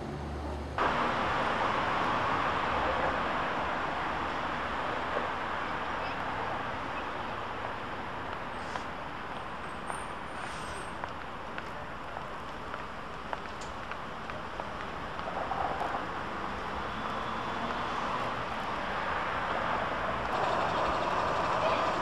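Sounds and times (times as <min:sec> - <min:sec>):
bus engine rumbling: 0:00.0 - 0:22.0
traffic noise: 0:00.0 - 0:22.0.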